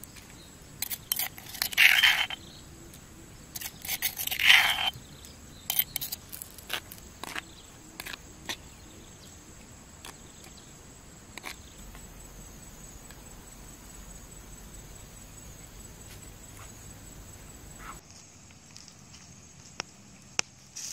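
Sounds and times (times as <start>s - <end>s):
insects buzzing: 0.0s - 20.9s
metal spoon scraping a dish: 0.8s - 2.4s, 3.5s - 7.4s
high-pitched insect drone: 0.9s - 2.6s, 11.6s - 18.0s
faint low rumble: 11.7s - 17.8s.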